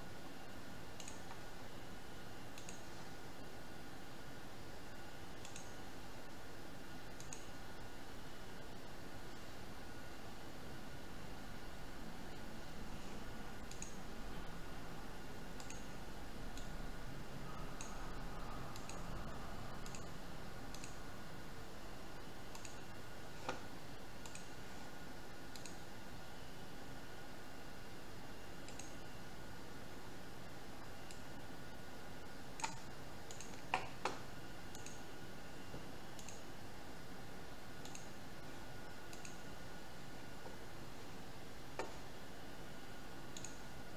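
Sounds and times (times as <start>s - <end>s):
steady background hiss: 0.0s - 43.9s
computer mouse clicks: 1.0s - 1.5s, 2.5s - 3.0s, 5.4s - 5.8s, 7.1s - 7.6s, 13.6s - 14.1s, 15.5s - 16.8s, 17.5s - 21.0s, 22.5s - 24.6s, 25.5s - 25.9s, 28.6s - 29.1s, 31.0s - 31.3s, 32.6s - 35.1s, 35.7s - 36.5s, 37.8s - 38.2s, 38.9s - 39.6s, 43.3s - 43.7s.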